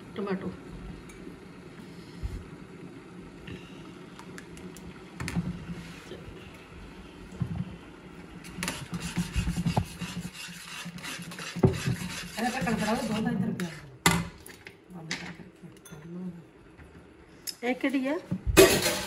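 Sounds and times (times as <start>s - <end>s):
metal spatula scraping a wok: 8.6s - 13.9s.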